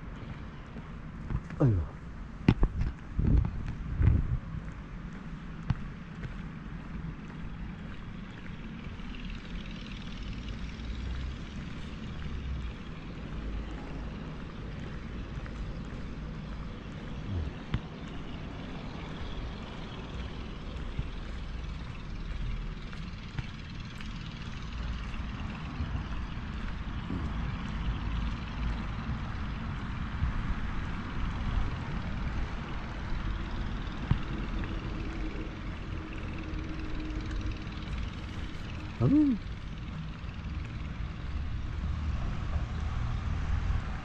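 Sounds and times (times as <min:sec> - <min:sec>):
wind on microphone: 0:02.6 - 0:04.6.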